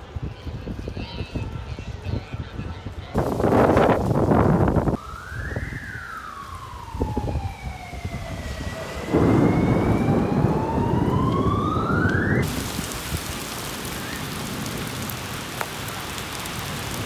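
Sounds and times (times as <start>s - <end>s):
emergency siren wailing: 4.5s - 12.8s
loud rushing noise: 6.3s - 14.5s.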